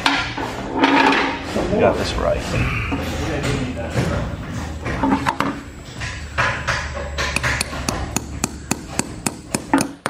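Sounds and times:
steady low hum: 0:00.0 - 0:10.0
hammer striking: 0:04.9 - 0:10.0.

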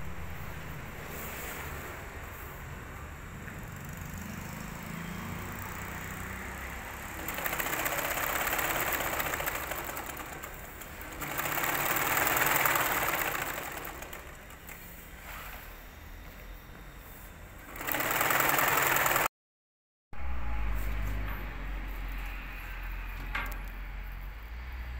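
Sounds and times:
sewing machine stitching: 0:05.6 - 0:15.0, 0:17.7 - 0:19.3
low hum: 0:20.1 - 0:24.9.

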